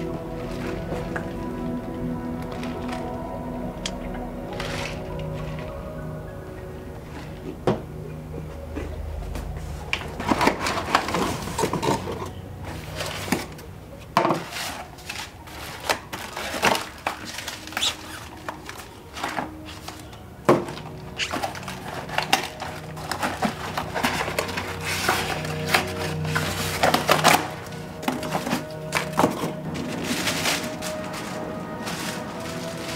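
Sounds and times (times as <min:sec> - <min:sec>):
cardboard and paper rustling: 0:00.0 - 0:06.2, 0:07.0 - 0:32.9.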